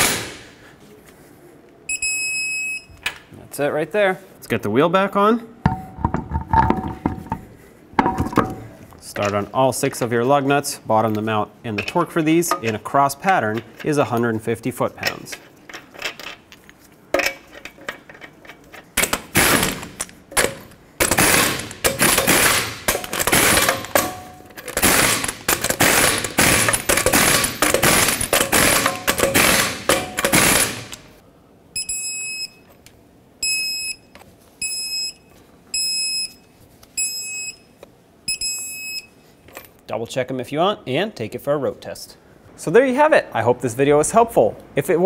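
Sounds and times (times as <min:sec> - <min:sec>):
torque wrench beeps: 0:01.9 - 0:03.0, 0:31.8 - 0:32.7, 0:33.4 - 0:37.7, 0:38.3 - 0:39.2
impact gun rattling: 0:05.7 - 0:08.7, 0:18.8 - 0:31.1.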